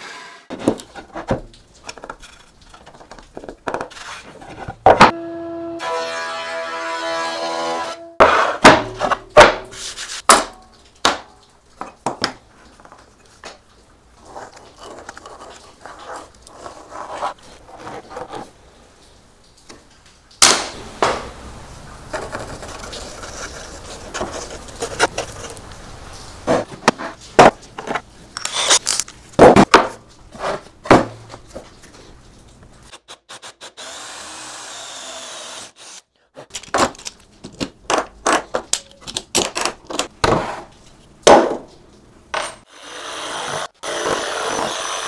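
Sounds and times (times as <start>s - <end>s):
scraping and rustling: 0.5s - 5.0s, 12.5s - 18.8s, 22.0s - 32.9s.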